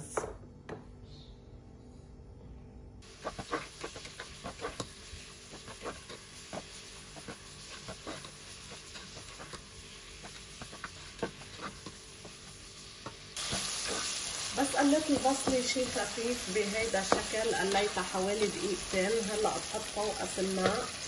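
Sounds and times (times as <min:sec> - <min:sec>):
onions sizzling in oil: 0:03.0 - 0:21.0
spatula tapping and scraping pot: 0:03.2 - 0:14.1, 0:15.0 - 0:16.1, 0:17.0 - 0:18.7, 0:20.5 - 0:20.9.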